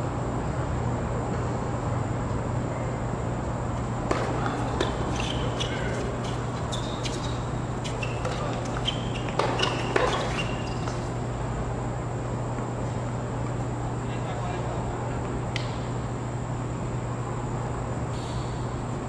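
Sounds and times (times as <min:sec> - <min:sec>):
steady low hum: 0:00.0 - 0:19.0
sneakers squeaking: 0:03.7 - 0:11.5
racket striking tennis ball: 0:04.0 - 0:11.2.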